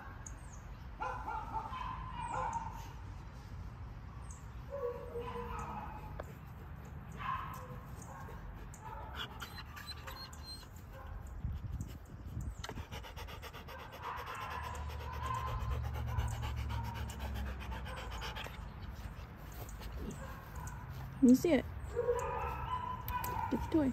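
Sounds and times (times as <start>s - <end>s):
dog panting: 5.4s - 10.8s, 11.5s - 23.9s.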